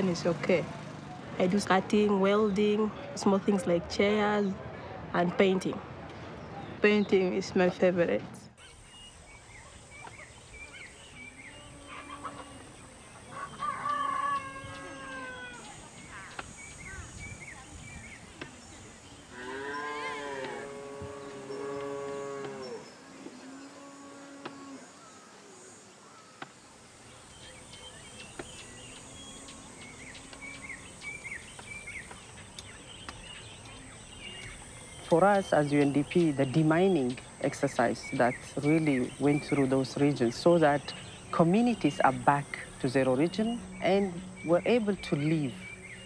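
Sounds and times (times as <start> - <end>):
small birds chirping: 6.1 - 46.0
high insect drone: 8.6 - 46.0
rooster crowing: 13.3 - 15.7.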